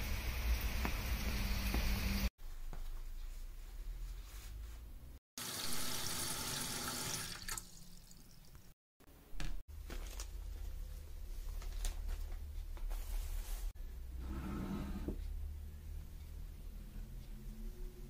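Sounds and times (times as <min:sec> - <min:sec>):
tap water running into bowl: 0:05.5 - 0:08.7.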